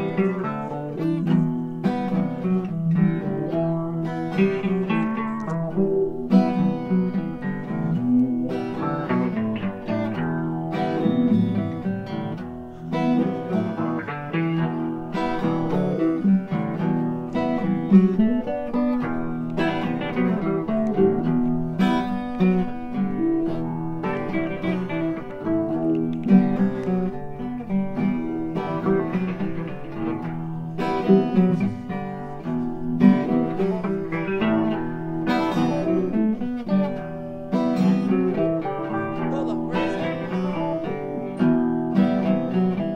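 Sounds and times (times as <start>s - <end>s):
acoustic guitar music: 0.0s - 42.9s.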